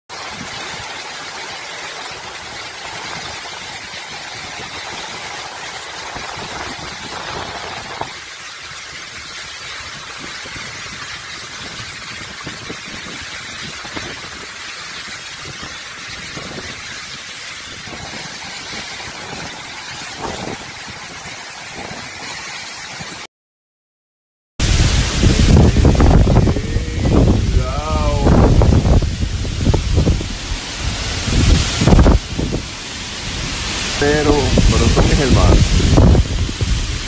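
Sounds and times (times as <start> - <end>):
wind and heavy rain: 0.1 - 23.3, 24.6 - 37.0
wind buffeting microphone: 2.3 - 22.4, 24.6 - 37.0.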